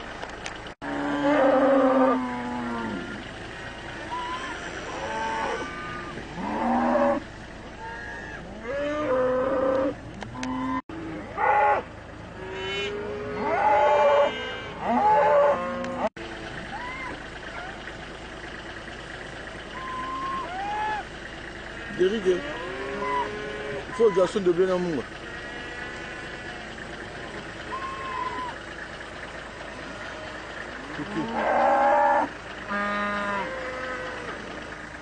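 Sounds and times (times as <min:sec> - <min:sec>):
cattle mooing: 0:00.8 - 0:03.3, 0:04.1 - 0:07.2, 0:07.8 - 0:16.1, 0:21.8 - 0:24.5, 0:25.2 - 0:26.9, 0:27.6 - 0:28.6, 0:29.7 - 0:34.8.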